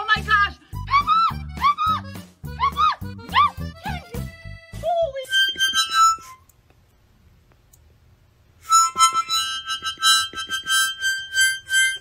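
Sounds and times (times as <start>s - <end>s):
miniature harmonica wheezy chords: 0.6s - 6.5s, 8.6s - 12.0s.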